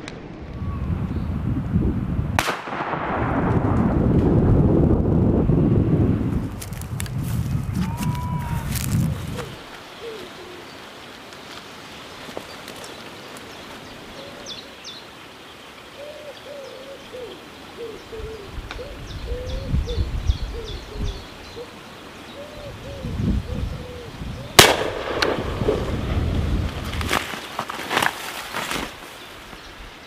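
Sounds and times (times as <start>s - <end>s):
woodpigeon cooing: 9.3s - 10.7s, 14.1s - 14.8s, 16.0s - 24.6s.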